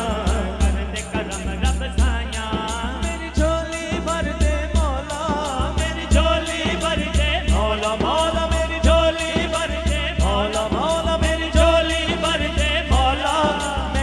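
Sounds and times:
brisk rattling beat: 0.0s - 14.0s
dhol drum beating: 0.0s - 14.0s.

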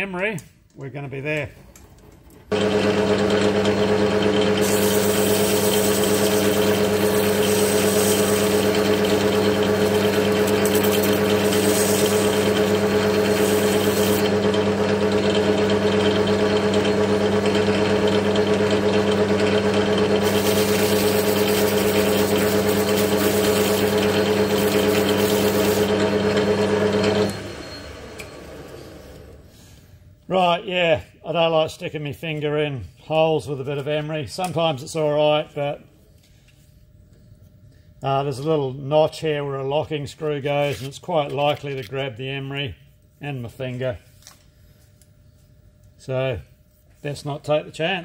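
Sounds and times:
lathe motor hum: 2.5s - 29.5s.

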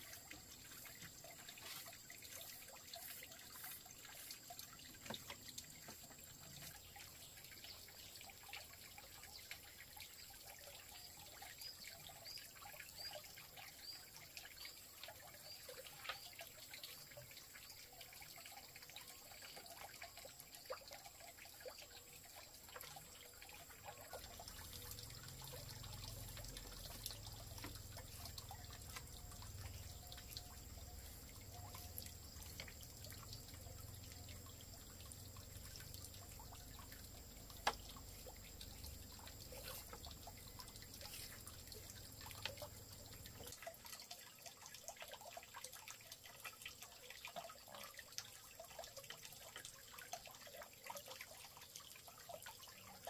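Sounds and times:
faint small clicks and taps: 37.5s - 38.4s.

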